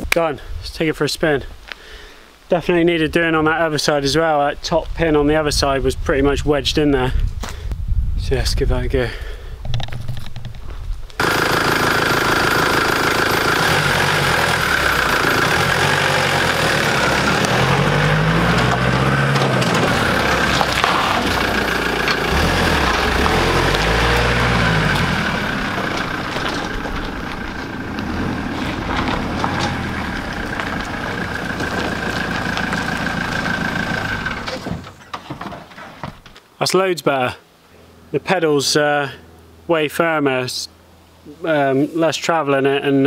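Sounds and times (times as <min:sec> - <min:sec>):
truck engine driving past: 0:11.2 - 0:34.8.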